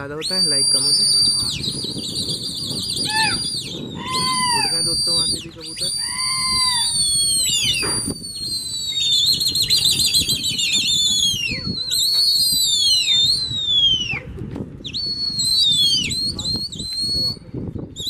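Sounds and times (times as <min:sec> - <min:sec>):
warbling whistles: 0:00.0 - 0:17.4
high whistles sliding down: 0:00.2 - 0:14.2.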